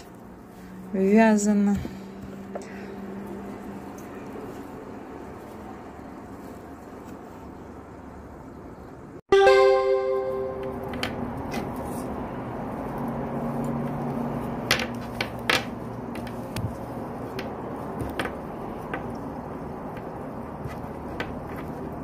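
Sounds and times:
ringing musical note: 9.3 - 11.0.

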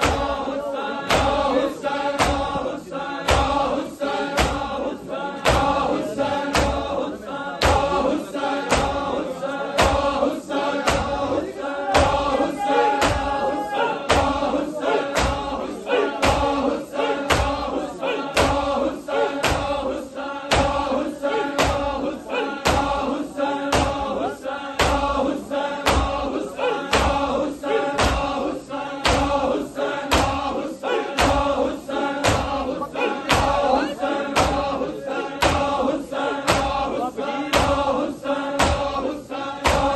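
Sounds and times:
crowd of men chanting: 0.0 - 39.9
hands slapping chests: 2.2 - 2.5.

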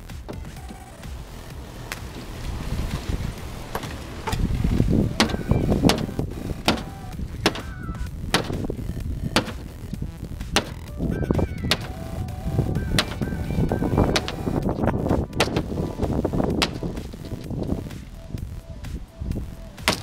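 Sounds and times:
hammer striking wood: 5.2 - 8.8, 9.4 - 9.8, 10.6 - 10.9, 11.7 - 12.0, 12.9 - 13.4, 14.0 - 14.7, 15.4 - 15.8, 16.6 - 17.0.

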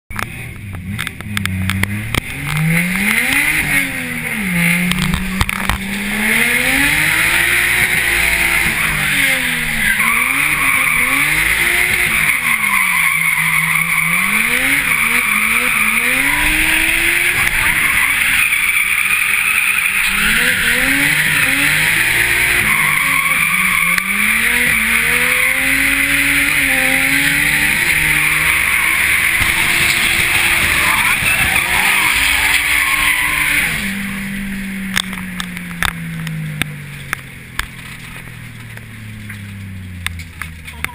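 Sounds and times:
car engine revving: 0.1 - 40.9
tyres screeching: 1.9 - 36.4.

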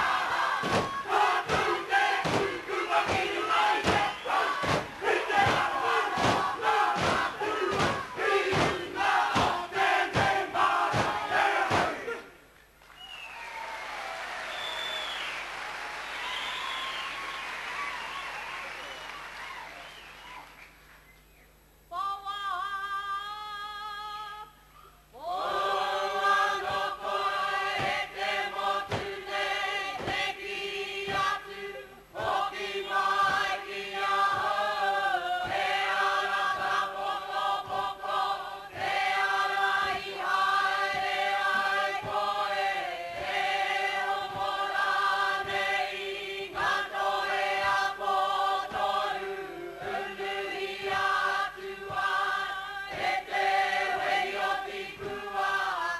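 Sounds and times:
group singing: 0.0 - 12.4, 25.2 - 55.9.

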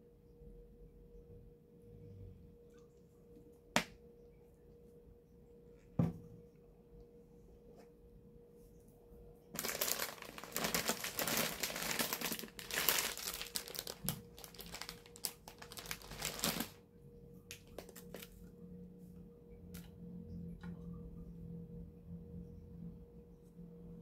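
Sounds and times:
plastic packaging crinkling: 9.5 - 16.8, 17.5 - 18.4.

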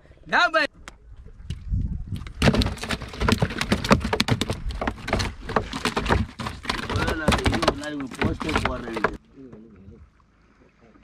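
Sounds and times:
fish thrashing in plastic tub: 2.2 - 9.2.

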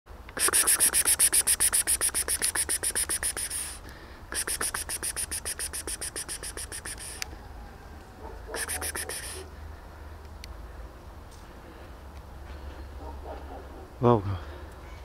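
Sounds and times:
person hissing to call cats: 0.3 - 7.3, 8.5 - 9.5.

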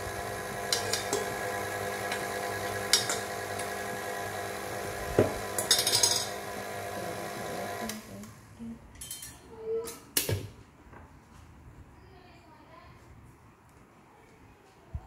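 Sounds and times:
stand mixer running: 0.0 - 8.1
metal spoon clinking on steel bowl: 0.7 - 1.3, 5.6 - 6.3, 9.0 - 9.4.

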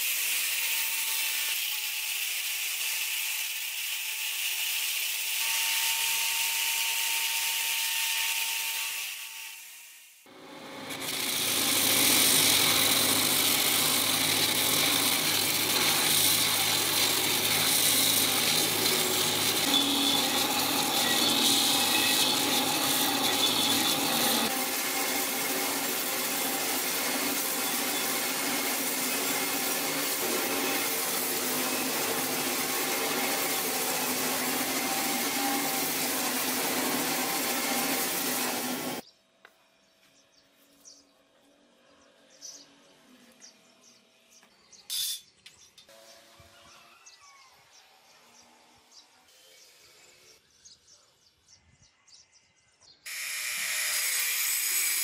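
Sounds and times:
blade grinding on belt grinder: 0.0 - 39.0, 53.1 - 55.0
grinder motor hum: 10.3 - 39.0.

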